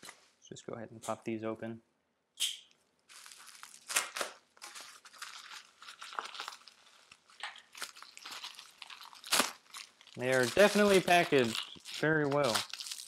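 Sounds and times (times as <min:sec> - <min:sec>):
plastic bag crackles: 0:03.1 - 0:13.0
plastic bag rustling: 0:03.1 - 0:13.0.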